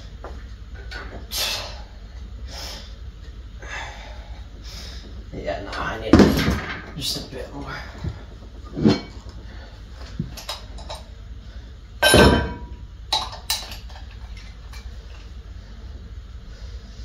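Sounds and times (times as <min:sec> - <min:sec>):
metal clank with ringing: 0:08.8 - 0:09.2, 0:12.0 - 0:12.8.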